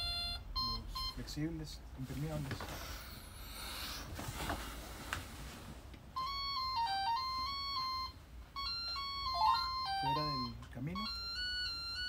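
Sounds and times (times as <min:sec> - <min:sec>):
electronic beeping tune: 0:06.2 - 0:12.0.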